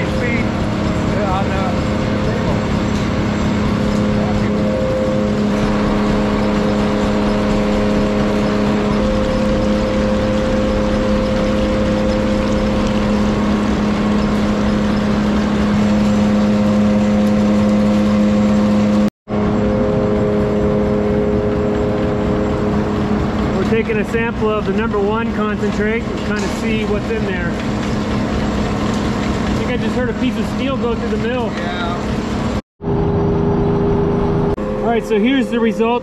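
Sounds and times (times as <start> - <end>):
machinery humming: 0.0 - 36.0.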